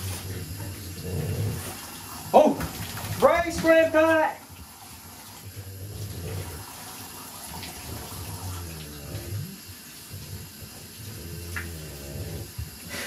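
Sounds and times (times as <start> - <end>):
water running from tap and splashing: 0.0 - 13.0.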